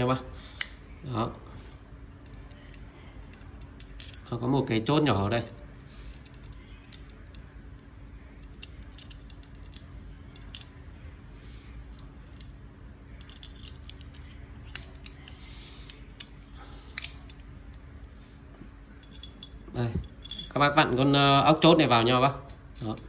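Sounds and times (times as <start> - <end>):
small metallic clicks and clinks: 2.2 - 4.3, 11.9 - 17.4, 18.9 - 20.6, 22.4 - 23.0.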